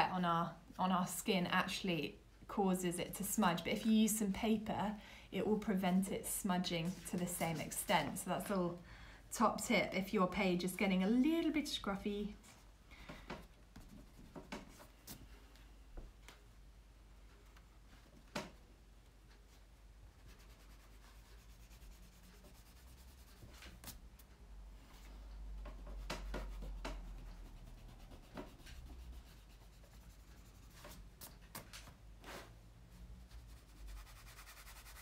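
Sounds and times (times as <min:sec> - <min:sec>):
pencil scratching on paper: 0:20.1 - 0:24.0, 0:25.8 - 0:31.3, 0:33.3 - 0:35.0.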